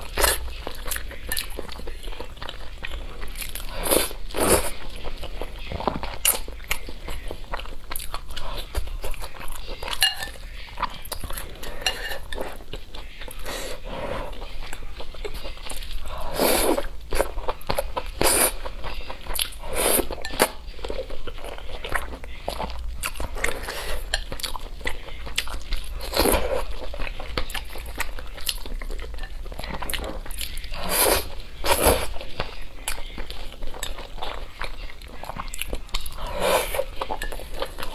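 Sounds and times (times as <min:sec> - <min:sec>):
chewing: 0:00.0 - 0:37.9.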